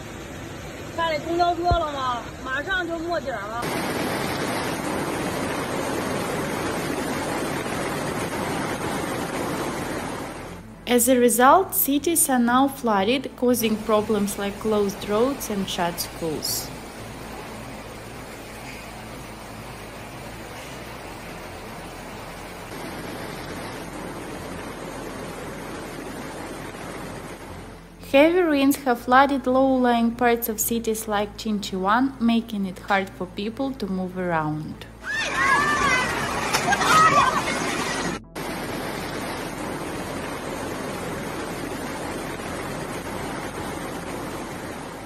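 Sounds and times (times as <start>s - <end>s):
heavy rain: 0.0s - 10.7s, 13.7s - 27.8s, 35.0s - 45.0s
wind: 0.0s - 11.7s, 12.3s - 30.6s, 31.2s - 45.0s
floodwater rushing: 0.0s - 29.9s, 34.9s - 45.0s.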